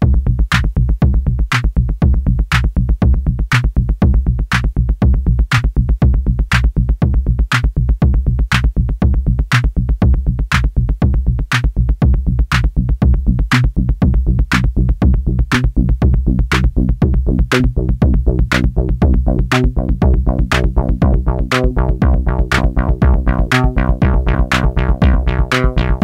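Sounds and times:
electronic music with drum-machine beat: 0:00.0 - 0:26.0.

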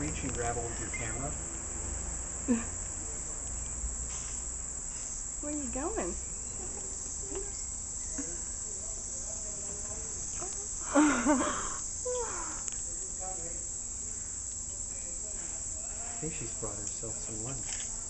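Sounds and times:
insects chirring: 0:00.0 - 0:18.0
woman laughing: 0:02.5 - 0:02.8, 0:10.8 - 0:12.6.

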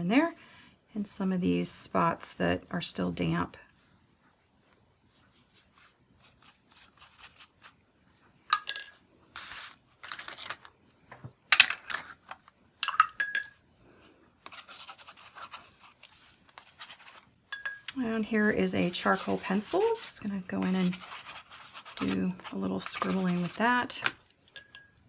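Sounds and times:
dry papers rustling: 0:09.4 - 0:10.7, 0:14.4 - 0:17.4, 0:18.1 - 0:24.1
scratchy rubbing: 0:14.4 - 0:17.3, 0:18.1 - 0:24.0
tools clicking and tapping: 0:17.5 - 0:18.0.

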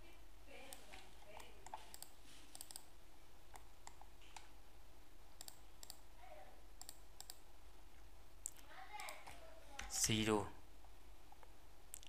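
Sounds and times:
mouse and keyboard clicks: 0:00.7 - 0:02.9, 0:03.5 - 0:04.5, 0:05.4 - 0:06.0, 0:06.8 - 0:07.4.

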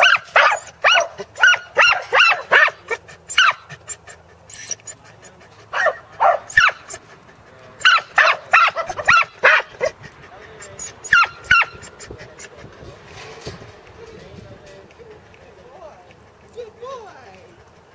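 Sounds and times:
dog barking: 0:00.0 - 0:03.7, 0:05.7 - 0:07.0, 0:07.8 - 0:10.0, 0:11.1 - 0:11.9.

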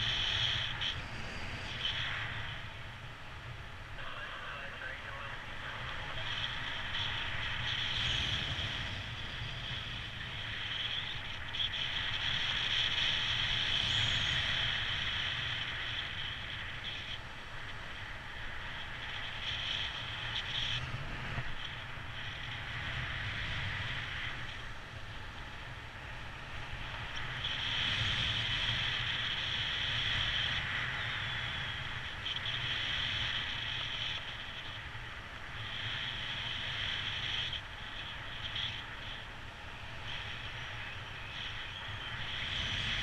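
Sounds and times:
wind rushing over microphone: 0:00.0 - 0:43.0.

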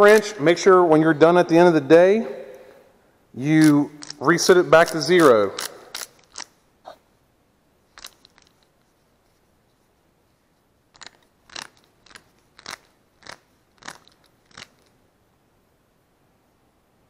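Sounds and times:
torque wrench clicking: 0:04.8 - 0:06.5.

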